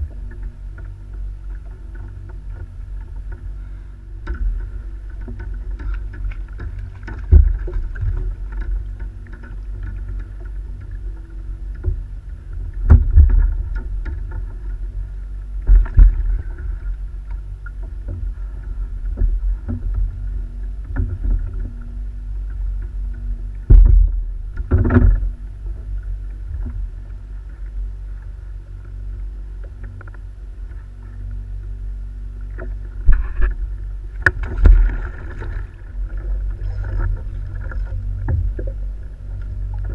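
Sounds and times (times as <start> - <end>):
low rumble: 0.0 - 39.9
water sloshing against kayak hull: 0.0 - 39.9
knocks and thumps on hull: 4.2 - 15.0, 15.6 - 27.7, 32.4 - 39.9.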